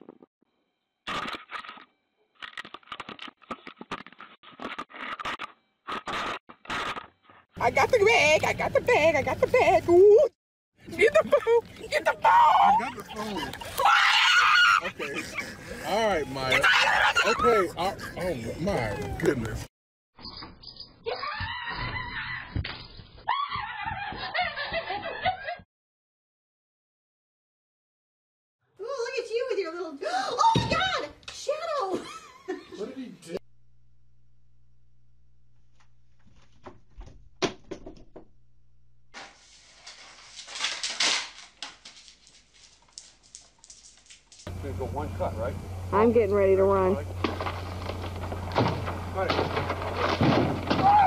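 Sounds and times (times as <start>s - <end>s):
girl screaming: 13.8s - 14.8s, 21.1s - 22.4s
rustling and clatter: 39.2s - 44.5s, 47.1s - 51.0s
cat tree crashing over: 47.2s - 51.0s.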